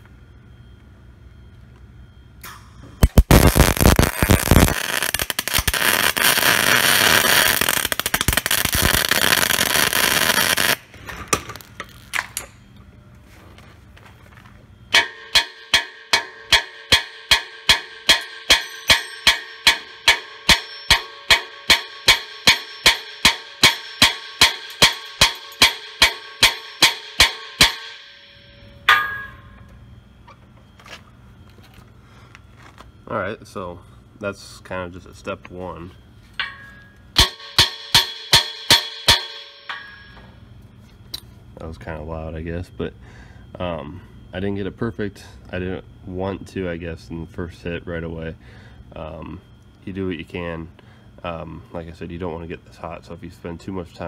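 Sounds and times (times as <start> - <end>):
welding arc crackling: 3.0 - 12.2
metal housing ringing: 14.8 - 30.0, 36.4 - 40.6
hammer pounding on metal: 14.9 - 28.2, 36.4 - 40.2.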